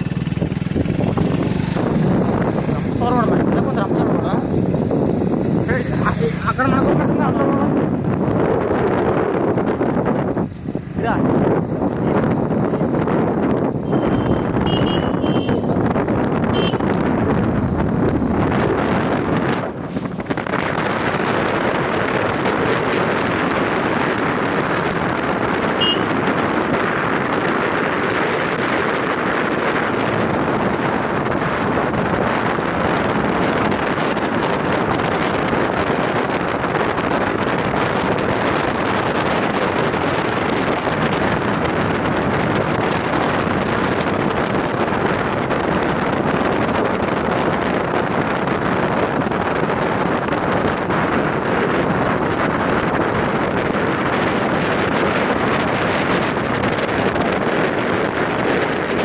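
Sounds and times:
vehicle running noise: 0.0s - 59.0s
wind rushing over microphone: 0.0s - 59.0s.

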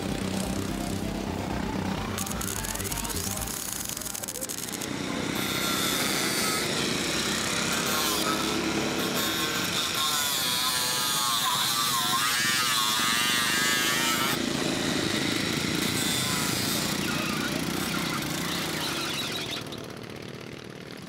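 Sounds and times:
angle grinder cutting metal: 0.0s - 21.0s
lawn mower engine racing: 0.0s - 21.0s.

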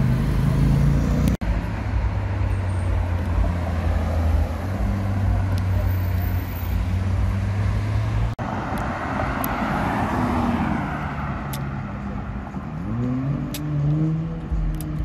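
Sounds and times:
car engine droning: 0.0s - 15.0s
car passing by: 3.3s - 12.2s.

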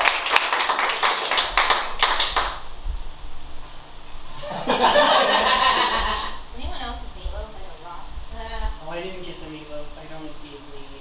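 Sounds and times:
audience applauding: 0.0s - 2.6s.

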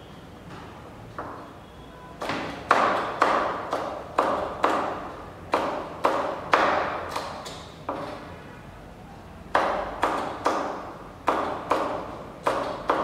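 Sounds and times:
knife chopping on plastic board: 2.2s - 8.2s, 9.5s - 13.0s.

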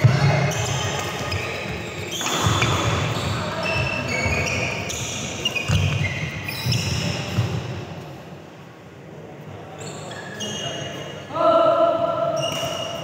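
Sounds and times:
shoes squeaking on court: 0.0s - 7.7s, 9.7s - 11.2s, 12.4s - 13.0s.

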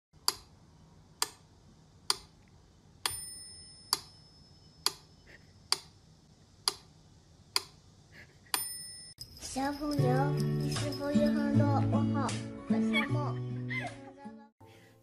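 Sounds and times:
metronome bell ringing: 3.1s - 4.8s, 8.6s - 12.1s.

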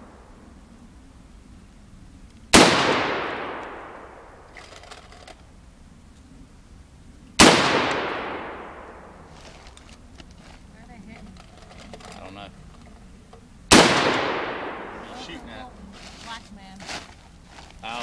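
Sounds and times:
rifle shots: 2.5s - 5.3s, 7.4s - 9.3s, 13.7s - 15.4s.

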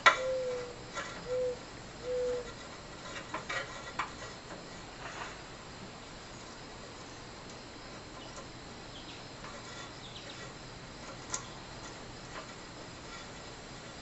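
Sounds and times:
steady low hiss: 0.0s - 14.0s
wires rustling against metal fixture: 2.4s - 5.5s, 9.4s - 14.0s.

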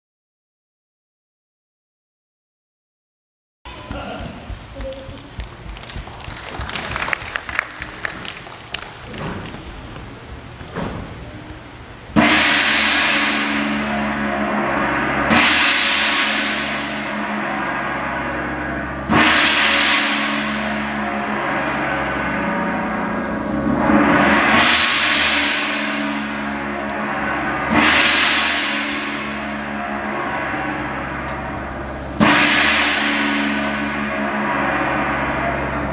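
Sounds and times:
gong struck: 12.1s - 35.9s.

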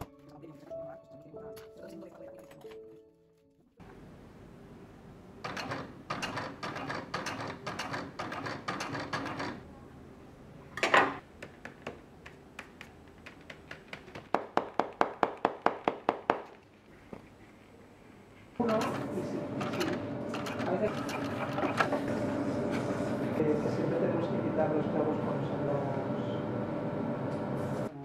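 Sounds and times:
sharp taps and knocks: 11.4s - 16.6s.

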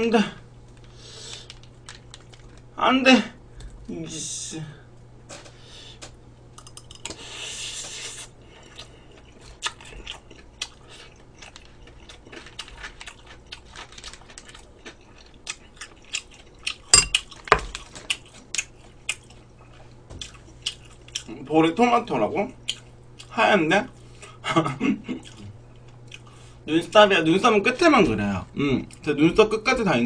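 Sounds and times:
chewing: 8.5s - 21.4s, 22.6s - 24.0s, 25.1s - 26.4s.

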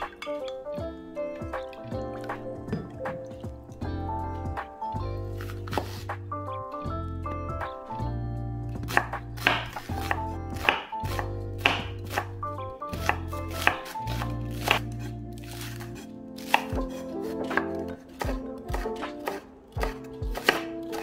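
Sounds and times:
knife chopping on wooden board: 5.4s - 6.1s, 8.8s - 12.3s, 12.9s - 21.0s.

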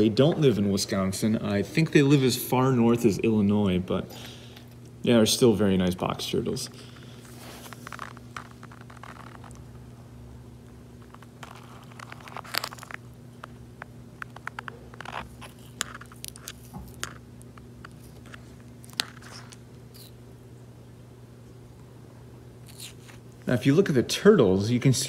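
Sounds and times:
steady low hum: 0.0s - 25.0s
turtle crunching carrot: 6.8s - 9.8s, 11.0s - 20.3s, 22.6s - 24.0s.

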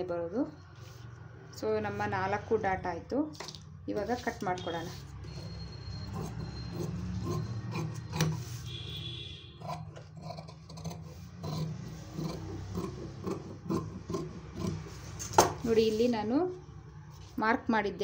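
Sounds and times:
scissors snipping fabric: 9.6s - 15.7s.

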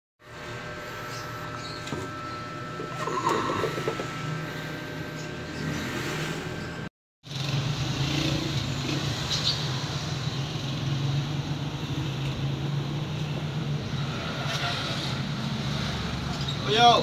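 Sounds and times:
low mechanical hum: 0.2s - 9.1s
street traffic: 0.2s - 17.0s.

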